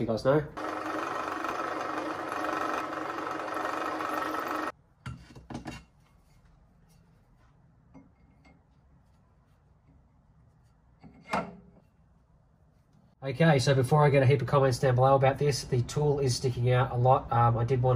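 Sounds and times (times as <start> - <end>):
drill press cutting metal: 0.6 - 4.7.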